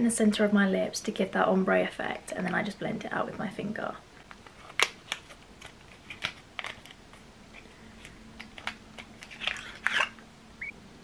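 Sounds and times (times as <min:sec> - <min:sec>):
crinkly handling rustle: 0:04.2 - 0:10.2.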